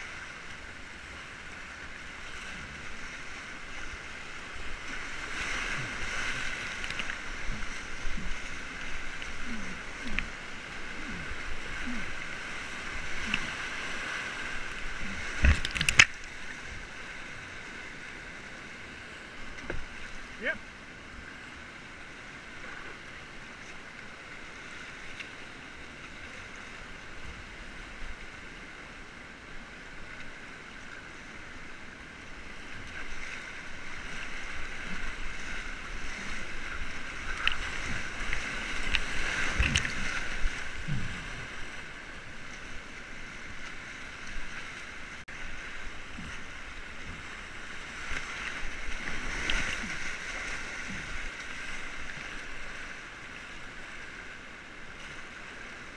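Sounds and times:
whitewater rapids rushing: 0.0 - 19.2
water splashing over kayak: 0.0 - 55.9.

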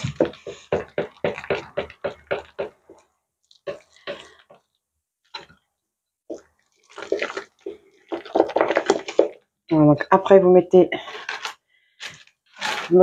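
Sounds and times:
wooden spoon stirring mash: 0.0 - 5.7, 6.3 - 9.4.

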